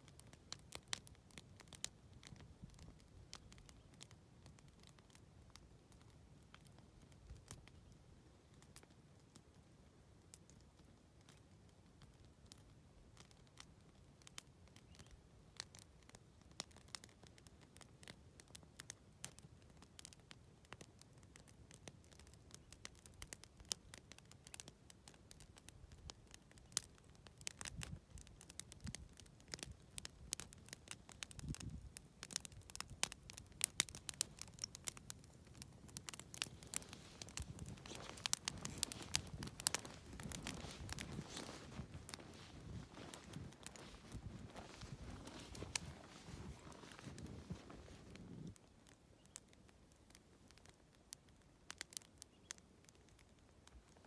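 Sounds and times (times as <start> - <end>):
hooves crunching in snow: 35.3 - 48.5.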